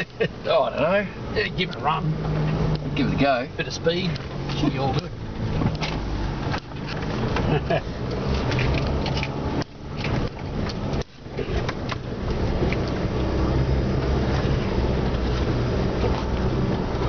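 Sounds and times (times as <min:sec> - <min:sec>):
vehicle engine pulling hard: 0:00.0 - 0:17.0
vehicle knocks and rattles: 0:04.3 - 0:17.0.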